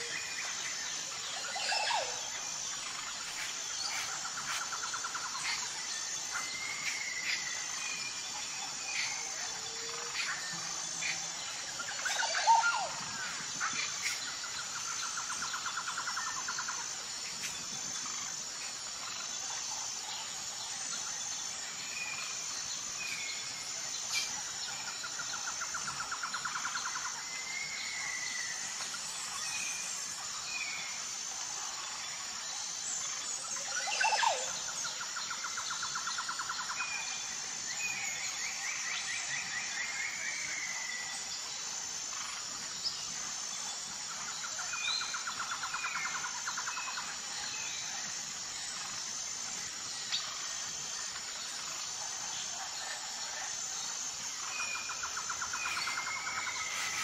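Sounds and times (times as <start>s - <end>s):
high insect drone: 0.0s - 57.0s
birds chirping and calling: 54.4s - 57.0s.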